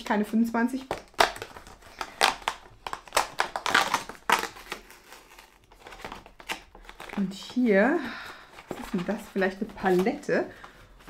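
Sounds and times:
cardboard and paper crackling and tearing: 0.8 - 7.6.

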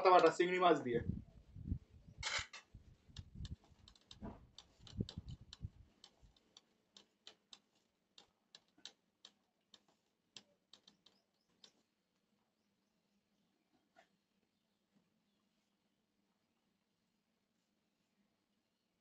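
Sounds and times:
wet clicking of fingers mashing rice: 3.1 - 11.9.

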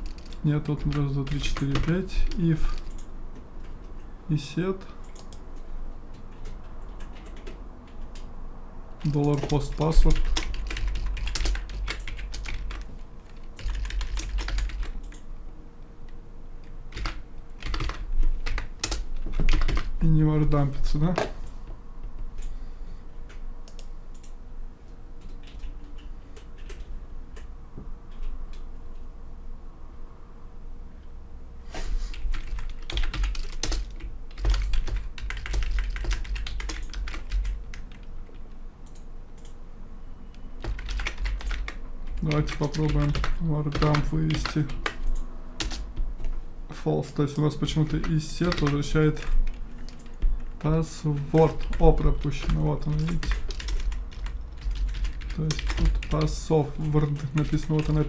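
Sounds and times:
typing on computer keyboard: 0.0 - 4.0, 5.0 - 5.4, 6.1 - 8.3, 9.0 - 15.3, 16.9 - 20.0, 25.2 - 27.5, 32.1 - 39.6, 40.6 - 46.4, 47.6 - 50.8, 51.4 - 58.0.

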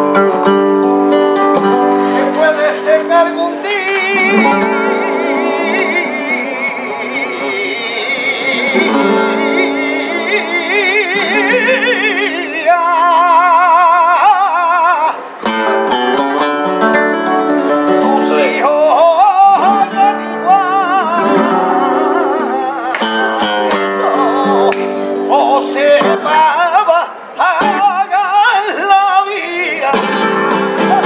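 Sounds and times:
sharp guitar strums: 0.0 - 13.0, 15.4 - 26.5, 29.9 - 31.0
flamenco guitar: 0.0 - 31.0
man singing: 1.6 - 15.4, 17.6 - 31.0.

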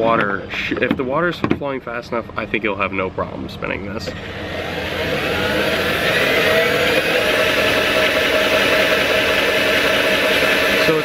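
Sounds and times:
cordless drill motor whine: 4.1 - 11.0.

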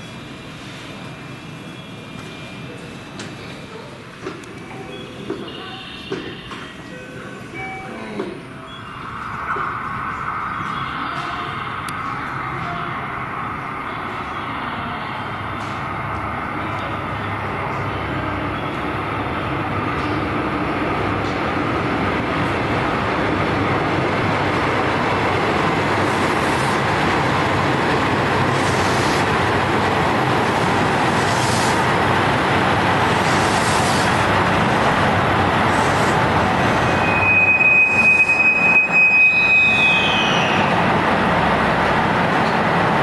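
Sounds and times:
train rumbling into station: 0.0 - 43.0
high brake squeal: 36.8 - 40.8.

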